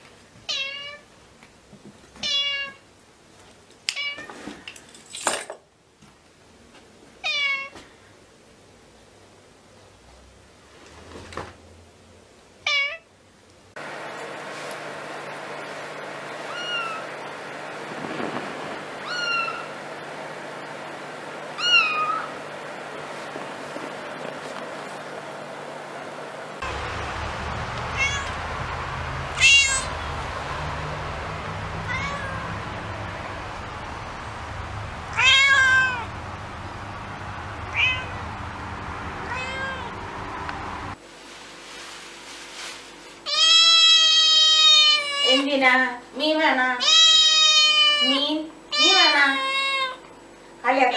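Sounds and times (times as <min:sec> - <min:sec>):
kitten meowing: 0:16.5 - 0:17.1, 0:19.0 - 0:19.7, 0:21.6 - 0:22.3, 0:27.8 - 0:28.4, 0:29.4 - 0:30.0, 0:31.8 - 0:32.6, 0:35.1 - 0:36.1, 0:37.7 - 0:38.2, 0:39.3 - 0:40.0, 0:43.3 - 0:45.4, 0:46.8 - 0:50.0.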